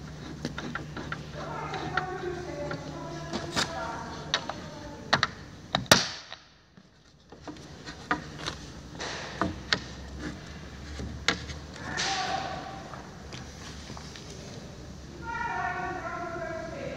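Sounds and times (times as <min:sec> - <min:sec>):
wooden slat scraping: 0:00.0 - 0:04.6, 0:07.3 - 0:12.7.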